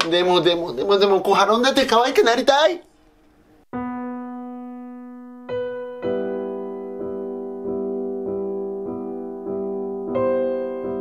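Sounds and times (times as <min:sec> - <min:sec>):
soft piano chords: 0:03.6 - 0:11.0.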